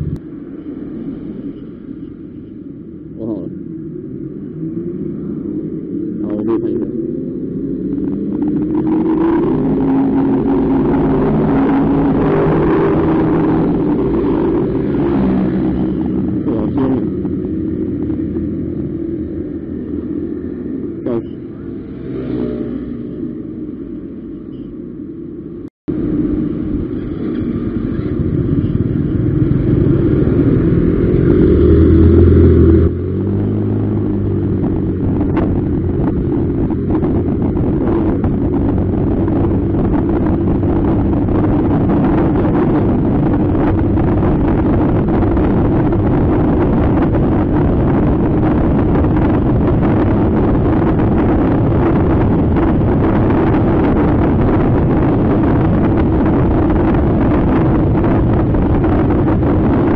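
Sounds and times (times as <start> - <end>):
wind and road noise: 0.0 - 59.9.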